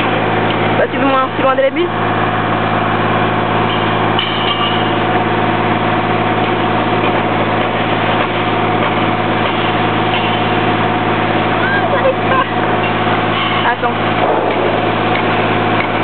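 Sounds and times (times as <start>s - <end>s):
engine hum: 0.0s - 16.0s.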